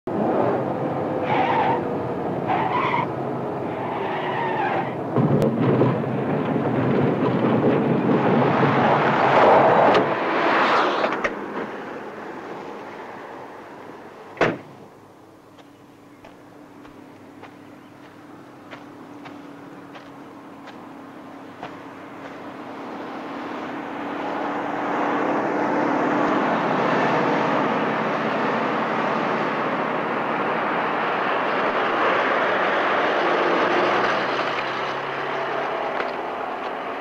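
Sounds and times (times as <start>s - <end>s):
car driving fast: 0.1s - 15.0s, 16.3s - 37.0s
tyres skidding on dirt: 1.2s - 14.0s, 15.5s - 37.0s
car door slamming: 14.4s - 14.8s.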